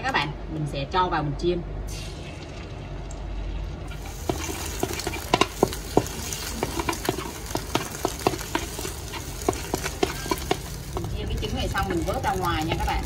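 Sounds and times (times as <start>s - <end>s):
egg sizzling in hot oil: 3.9s - 13.0s
wooden spatula scraping wok: 3.9s - 13.0s.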